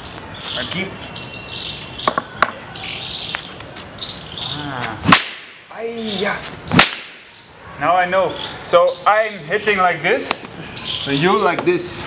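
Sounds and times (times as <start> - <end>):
high chirping: 0.0 - 4.9, 5.5 - 11.8
stick striking sharp crack: 4.8 - 5.7, 6.7 - 7.3.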